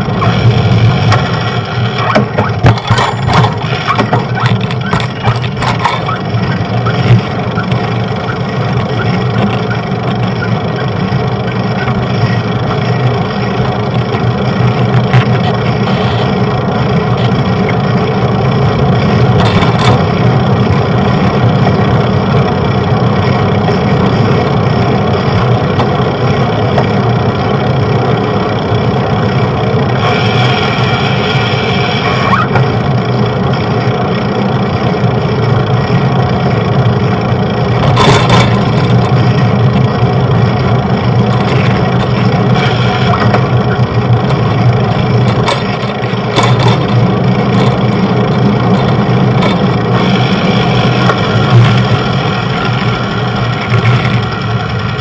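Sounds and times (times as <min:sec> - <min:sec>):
traffic drone: 0:00.0 - 0:55.0.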